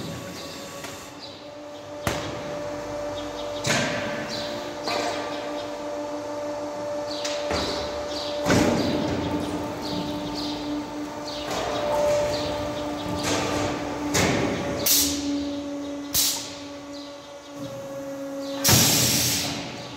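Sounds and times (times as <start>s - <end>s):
motor hum: 0.0s - 19.9s
machine metal clunks: 2.0s - 2.7s, 3.4s - 5.7s, 7.1s - 10.6s, 11.2s - 17.8s.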